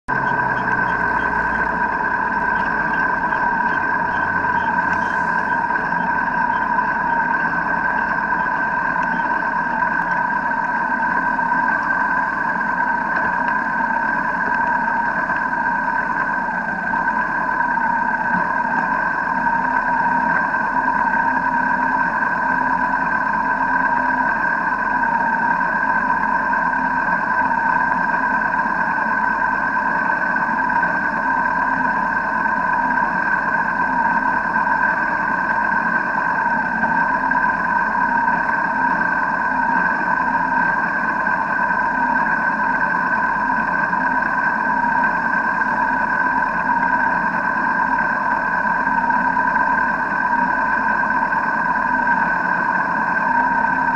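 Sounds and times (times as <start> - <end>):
steady high whine: 0.0 - 53.9
motorcycle engines idling: 0.1 - 13.4.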